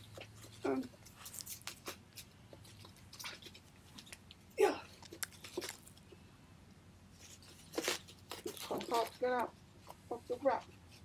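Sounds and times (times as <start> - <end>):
packaging wrap rustling and crackling: 0.0 - 6.1, 7.1 - 9.5.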